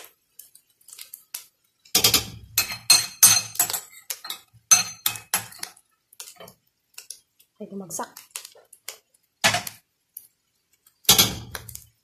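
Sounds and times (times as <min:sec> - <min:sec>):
metal clattering against cooking pot: 0:01.9 - 0:05.8.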